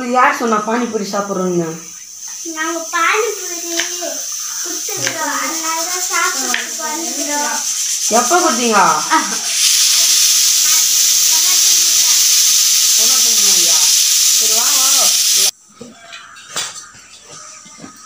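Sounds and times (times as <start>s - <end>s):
hot oil sizzling: 0.0s - 15.6s
faint children's voices: 2.4s - 7.8s.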